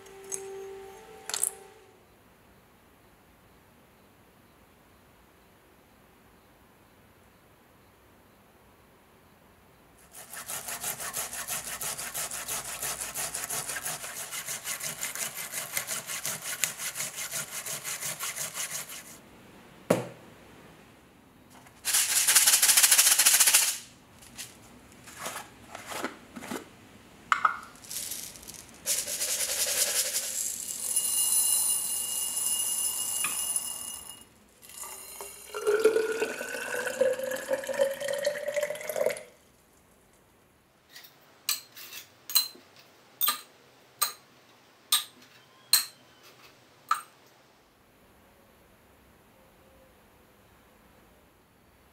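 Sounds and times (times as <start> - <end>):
plastic jar opening clicks: 1.3 - 1.6
fast scraping strokes: 10.0 - 19.2, 21.8 - 23.8, 27.9 - 30.9
single knock: 19.9 - 20.2
liquid poured into glass cylinder: 30.7 - 39.3
hissing pour: 31.9 - 39.3.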